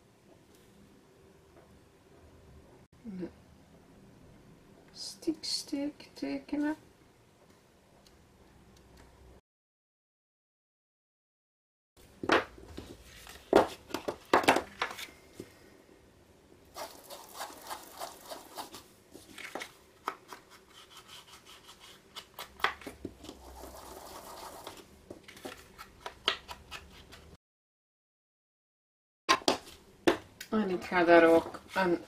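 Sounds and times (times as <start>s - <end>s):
foam tool rubbing paper: 23.4s - 24.8s.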